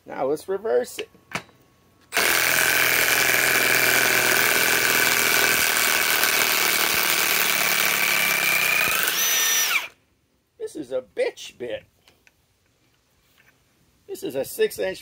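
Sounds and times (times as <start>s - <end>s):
impact wrench running: 2.1s - 10.0s.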